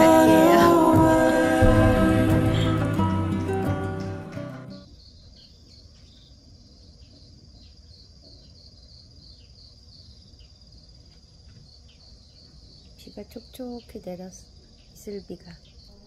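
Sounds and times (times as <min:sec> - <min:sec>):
crickets trilling: 0:04.8 - 0:16.0.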